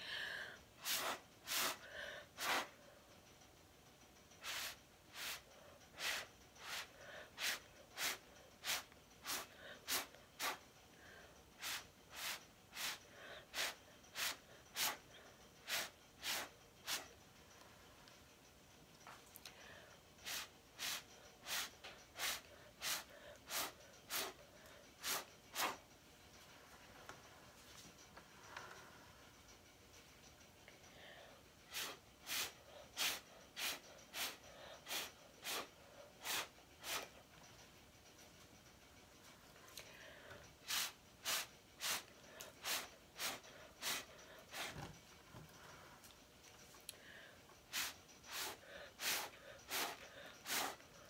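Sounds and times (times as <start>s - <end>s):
puffs of breath through straw: 0.0s - 2.8s, 4.4s - 10.6s, 11.2s - 15.0s, 31.0s - 37.1s, 40.0s - 44.7s, 47.0s - 51.0s.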